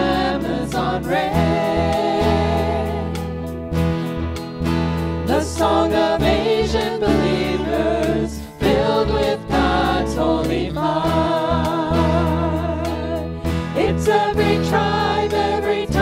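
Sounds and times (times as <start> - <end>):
voices singing with vibrato: 0.0 - 3.3, 5.3 - 16.0
instrumental accompaniment with bass: 0.0 - 16.0.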